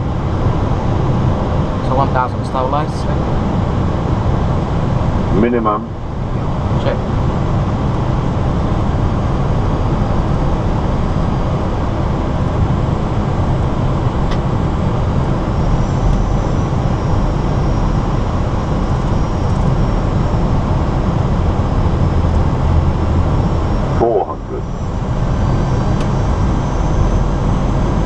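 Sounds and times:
airflow and engine rush: 0.0s - 28.0s
faint high whine: 0.0s - 28.0s.

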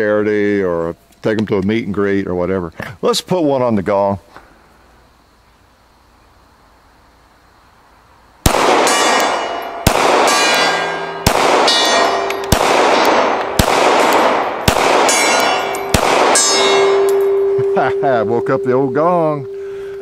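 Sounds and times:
pistol shots: 8.4s - 17.4s
steel gong clanging and ringing: 8.9s - 12.5s, 15.1s - 19.7s.

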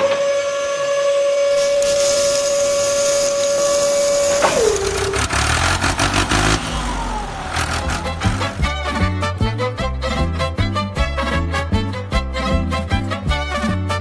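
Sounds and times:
sand pouring: 1.5s - 6.6s
toy electric motor whining: 1.5s - 8.7s.

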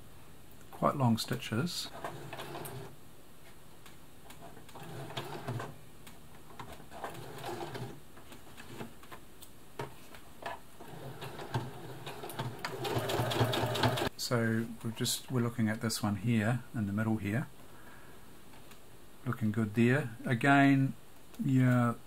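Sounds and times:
sewing machine stitching: 1.9s - 2.9s, 4.4s - 5.7s, 6.6s - 8.0s, 10.8s - 14.1s.

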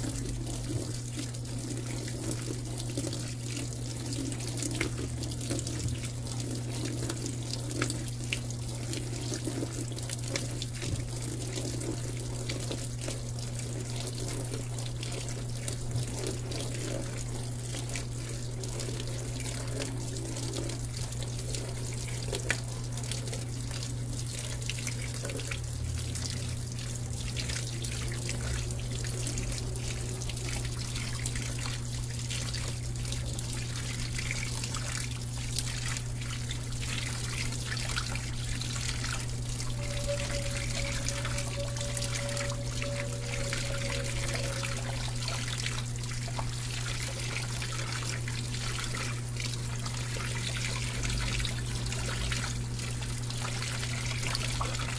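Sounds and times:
washer low hum: 0.0s - 54.9s
water running into washer drum: 0.0s - 54.9s
faint higher tone: 38.8s - 45.8s.

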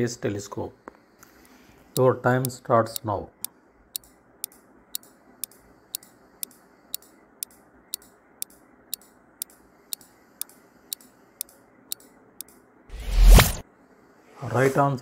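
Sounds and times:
clock ticking: 2.0s - 12.6s.

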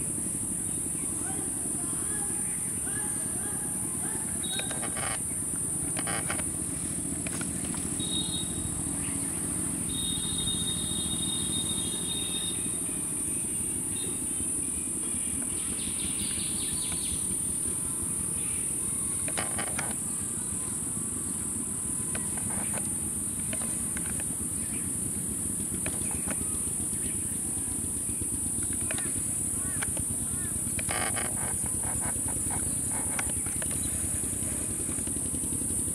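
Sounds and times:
high-pitched insect drone: 0.0s - 35.9s
low outdoor rumble: 0.0s - 35.9s
soft rustling clicks: 4.4s - 8.2s.

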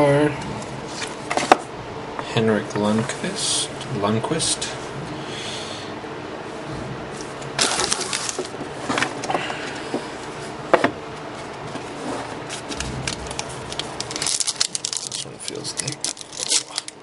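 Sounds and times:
card packs rustling and crinkling: 7.6s - 9.8s, 11.8s - 17.0s.

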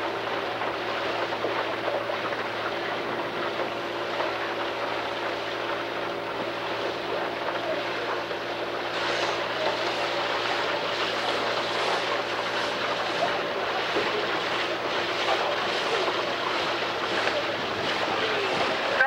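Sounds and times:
boat engine hum: 0.0s - 19.0s
water rushing past boat: 0.0s - 19.0s
wind buffeting microphone: 11.0s - 19.0s.

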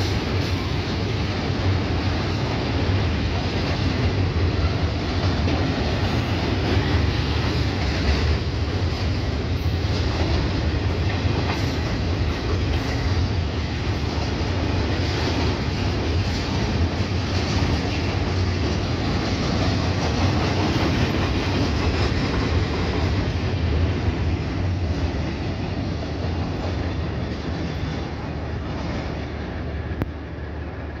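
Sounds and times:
freight train wheels rumbling: 0.0s - 31.0s.

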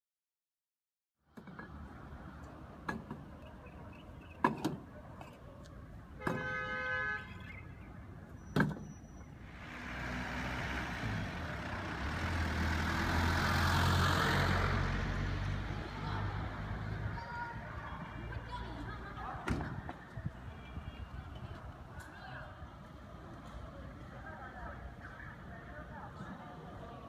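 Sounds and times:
road traffic: 1.2s - 27.0s
vehicle engine and tyre noise: 1.2s - 27.0s
car horn toot: 6.2s - 7.6s.

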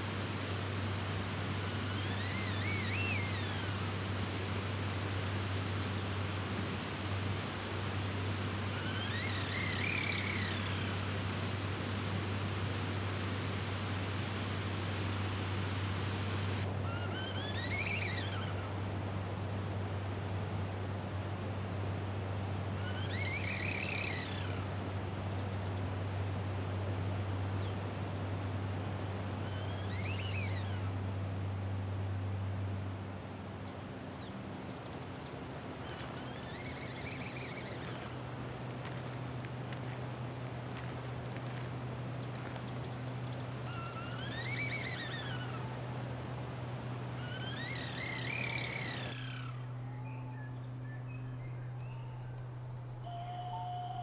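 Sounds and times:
steady low hum: 0.0s - 54.0s
faint high chirps: 33.6s - 38.1s, 40.7s - 45.4s, 47.2s - 54.0s
whistled call rising and falling: 33.6s - 38.2s, 40.8s - 45.6s, 47.2s - 52.4s, 53.0s - 54.0s
wooden bird whistles: 40.8s - 45.3s, 53.0s - 54.0s.

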